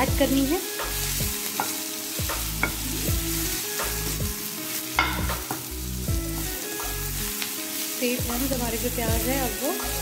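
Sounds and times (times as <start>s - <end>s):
onions sizzling in a frying pan: 0.0s - 10.0s
spoon scraping and knocking a pan: 0.8s - 3.2s, 4.9s - 6.6s.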